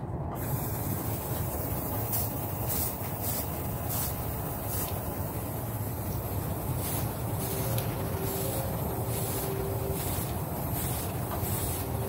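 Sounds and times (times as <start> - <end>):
airbrush hissing bursts: 0.4 - 12.0.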